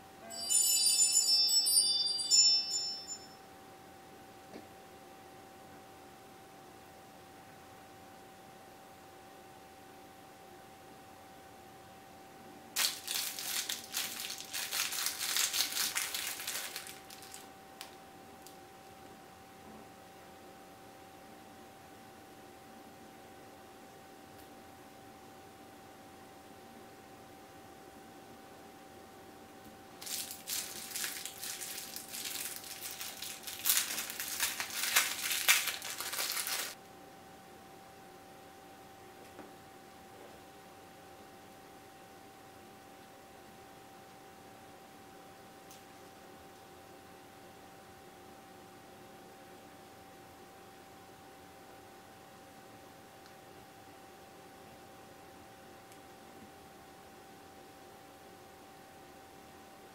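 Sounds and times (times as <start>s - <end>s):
plastic bag crinkling: 12.8s - 17.5s, 30.0s - 36.8s.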